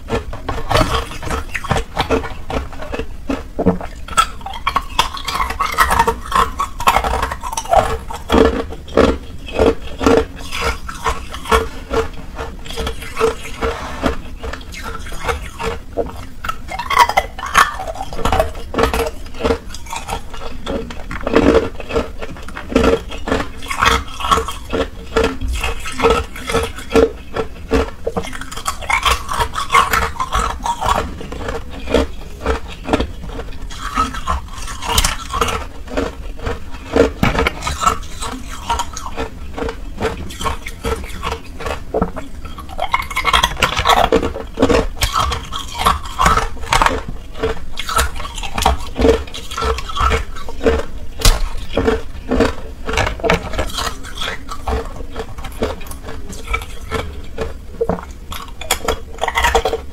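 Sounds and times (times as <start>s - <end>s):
ice being chewed: 0.0s - 59.9s.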